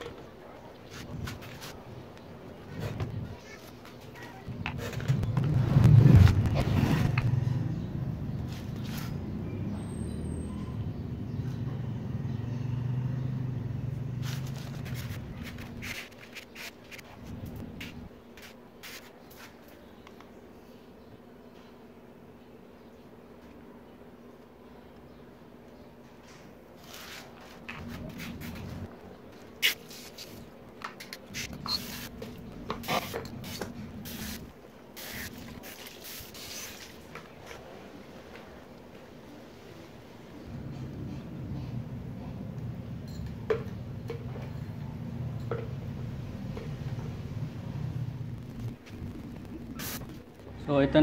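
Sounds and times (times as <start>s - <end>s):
spray bottle squirts hissing: 29.6s - 30.4s, 35.0s - 36.9s, 49.8s - 50.1s
hose water spraying into plastic: 32.8s - 37.0s.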